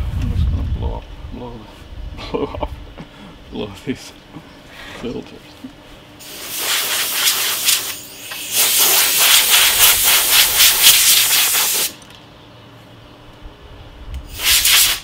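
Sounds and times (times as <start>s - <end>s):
compressed air blasting: 6.2s - 12.0s, 14.2s - 15.0s.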